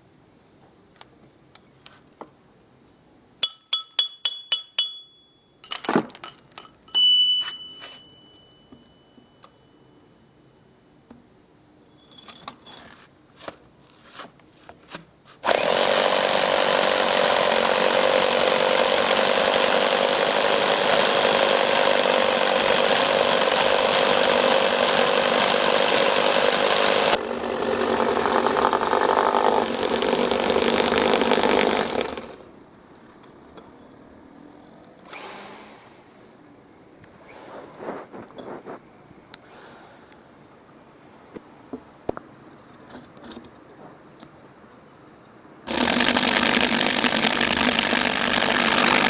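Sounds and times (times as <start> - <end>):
electric drill boring through wall: 15.4 - 32.5, 45.7 - 49.0.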